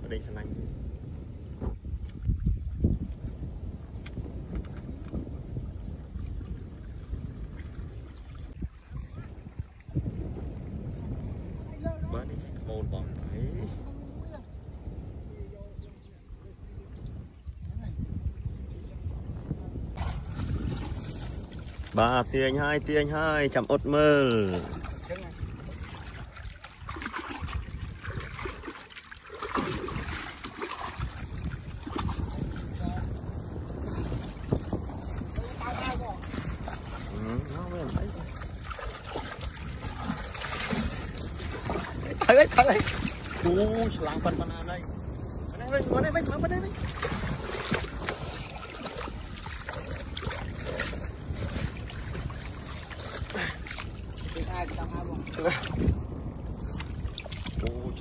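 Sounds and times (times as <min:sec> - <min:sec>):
wind buffeting microphone: 0:00.0 - 0:58.0
water splashing against raft: 0:20.0 - 0:58.0.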